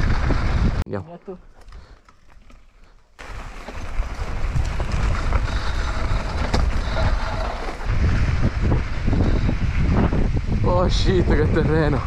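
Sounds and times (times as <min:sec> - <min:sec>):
wind rushing over microphone: 0:00.0 - 0:00.8, 0:03.3 - 0:12.0
bike rattling and ticking: 0:01.5 - 0:11.9
tyre rumble on dirt: 0:02.2 - 0:09.1.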